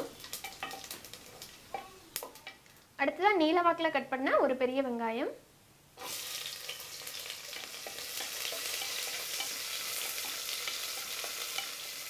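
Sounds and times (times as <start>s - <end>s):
onions sizzling in oil: 0.0s - 2.7s, 6.0s - 12.0s.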